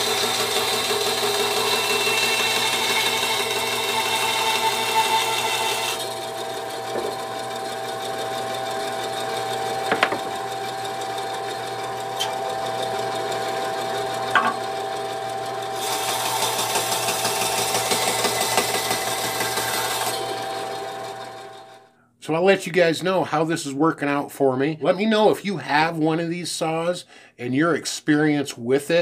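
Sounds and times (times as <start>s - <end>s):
bandsaw motor hum: 0.0s - 21.9s.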